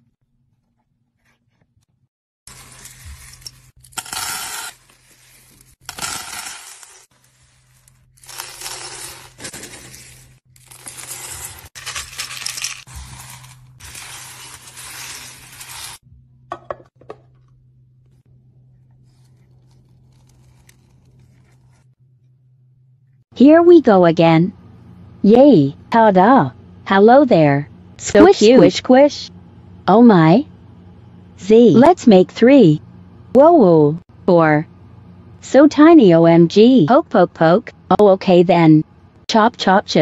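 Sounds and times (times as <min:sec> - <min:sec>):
beads pouring into bowls: 0:02.5 - 0:07.6, 0:08.2 - 0:16.0.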